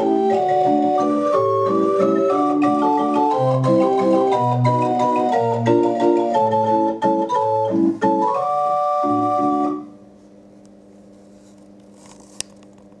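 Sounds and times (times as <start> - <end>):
pipe organ chords: 0.0 - 10.0.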